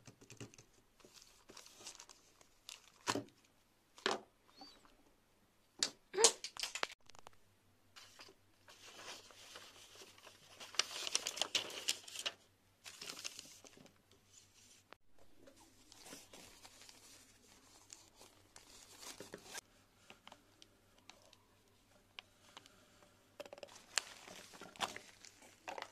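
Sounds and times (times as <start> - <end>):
paper and plastic crinkling: 1.0 - 3.3, 8.0 - 14.8, 15.5 - 20.4, 23.6 - 25.9.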